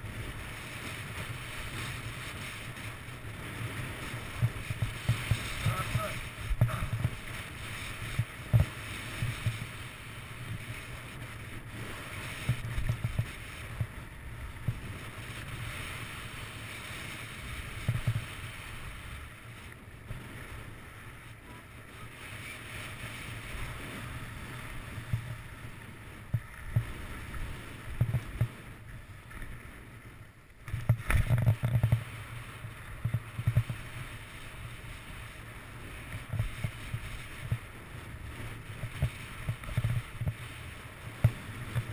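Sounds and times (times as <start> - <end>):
wind buffeting microphone: 0.0 - 30.0
skis scraping over snow: 0.0 - 41.9.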